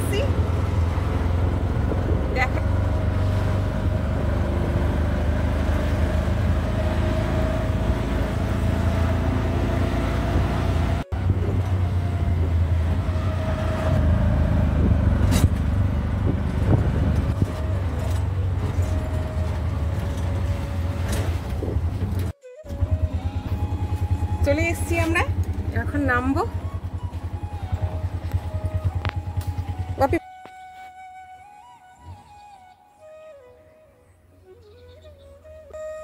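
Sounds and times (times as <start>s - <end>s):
small engine running: 22.2s - 30.2s.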